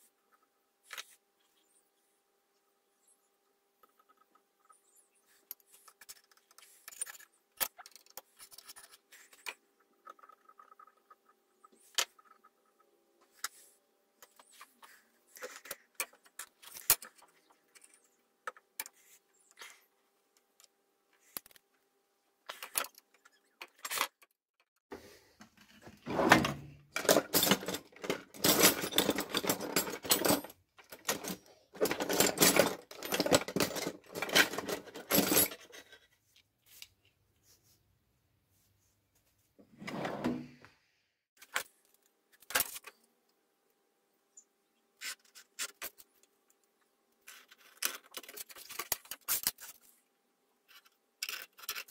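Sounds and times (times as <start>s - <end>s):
tool chest drawer pulled open: 26.0s - 27.7s, 39.7s - 40.6s.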